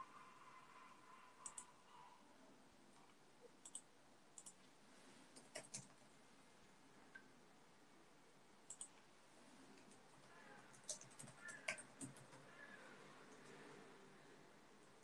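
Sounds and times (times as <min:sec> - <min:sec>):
computer mouse clicks: 0:01.4 - 0:01.8, 0:03.0 - 0:04.7, 0:05.4 - 0:06.0, 0:08.7 - 0:09.1, 0:09.8 - 0:13.6.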